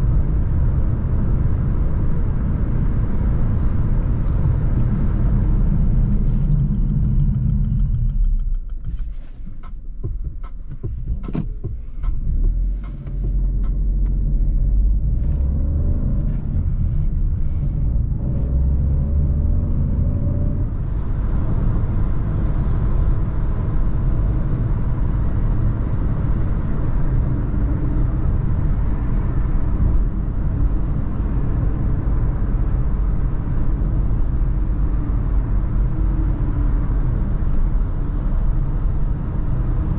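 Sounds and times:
car engine driving: 0:00.0 - 0:39.9
road rumble: 0:00.0 - 0:39.9
sharp clicks and knocks: 0:04.8 - 0:14.2.

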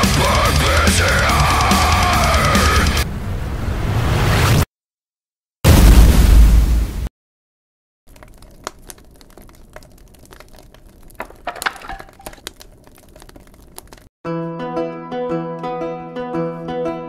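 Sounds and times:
burning wreckage crackling: 0:08.1 - 0:14.1.

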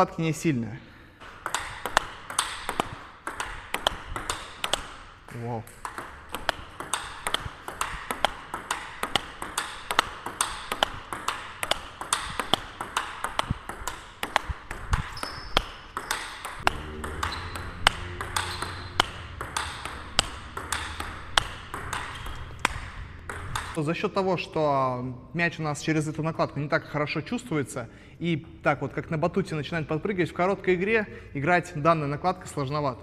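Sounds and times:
ball bouncing on table: 0:01.2 - 0:23.8
table tennis ball hitting bats: 0:01.2 - 0:23.8.

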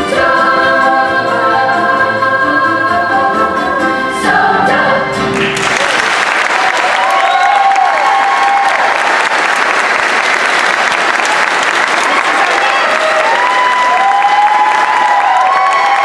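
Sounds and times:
choir singing a held chord: 0:00.0 - 0:05.4.

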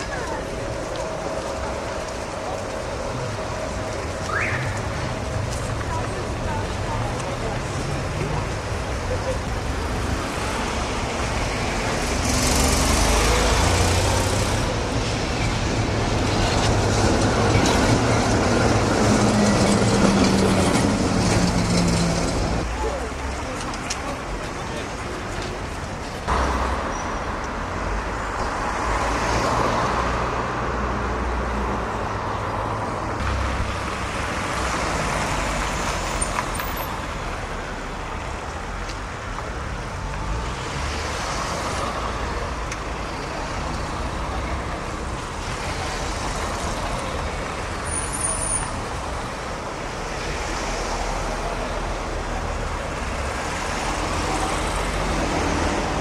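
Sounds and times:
tyres rolling on road: 0:00.0 - 0:56.0.

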